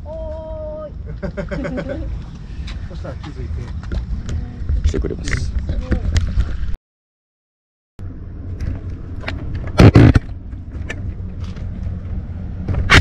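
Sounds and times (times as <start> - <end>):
low rumble: 0.0 - 6.8.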